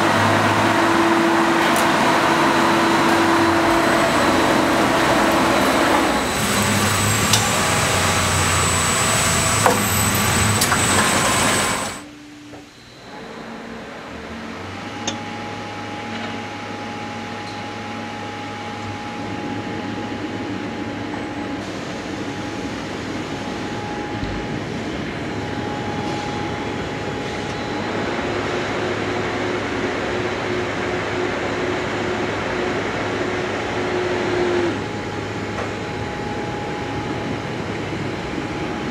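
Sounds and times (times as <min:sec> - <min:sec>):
faint high whine: 0:00.0 - 0:38.9
loud machinery running: 0:00.0 - 0:38.9
steady machine hum: 0:00.0 - 0:38.9.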